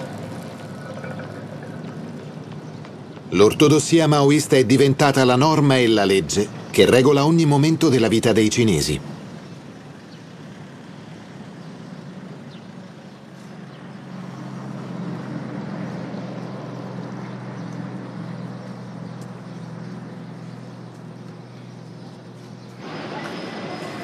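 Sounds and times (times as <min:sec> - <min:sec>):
low mechanical drone: 0:13.7 - 0:24.0.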